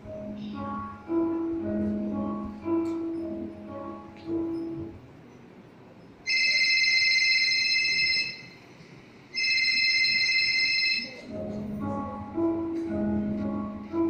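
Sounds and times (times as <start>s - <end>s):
background music: 0.0s - 5.0s, 11.3s - 14.0s.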